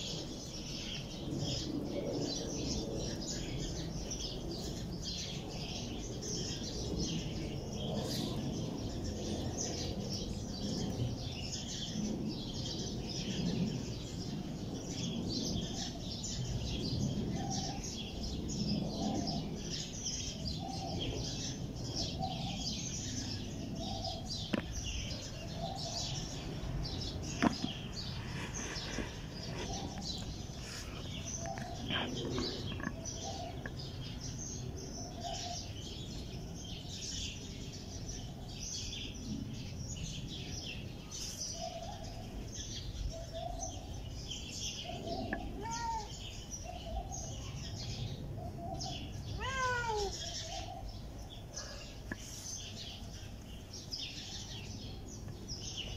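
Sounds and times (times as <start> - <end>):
steady low rumble: 0.0 - 41.1
small birds chirping: 0.0 - 55.9.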